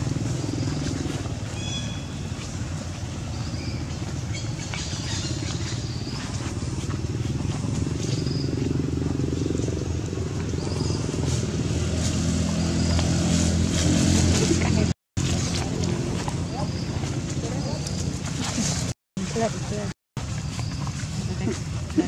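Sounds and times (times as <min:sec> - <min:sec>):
engine running steadily: 0:00.0 - 0:22.0.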